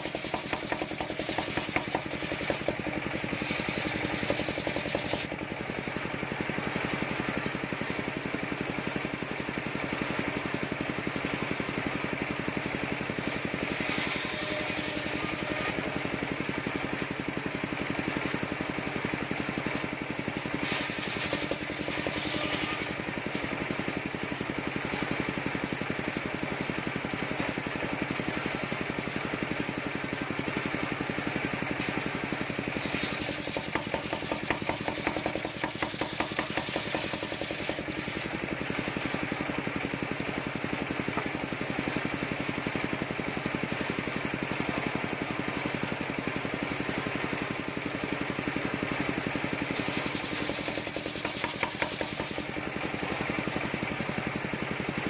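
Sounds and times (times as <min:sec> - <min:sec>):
circular sawmill cutting wood: 0:00.0 - 0:55.0.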